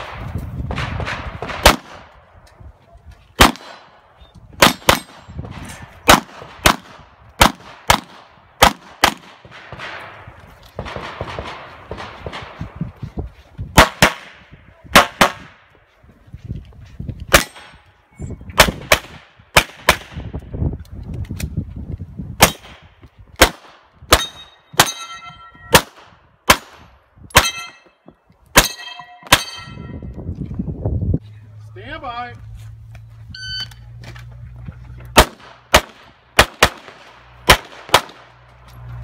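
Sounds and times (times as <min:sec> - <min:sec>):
pistol shots: 0:00.0 - 0:02.2, 0:03.4 - 0:04.0, 0:04.6 - 0:05.2, 0:06.0 - 0:10.1, 0:13.8 - 0:15.6, 0:17.3 - 0:17.7, 0:22.4 - 0:22.8, 0:23.4 - 0:25.1, 0:35.2 - 0:38.4
steel targets ringing: 0:24.2 - 0:25.8, 0:27.4 - 0:28.0, 0:28.6 - 0:30.0.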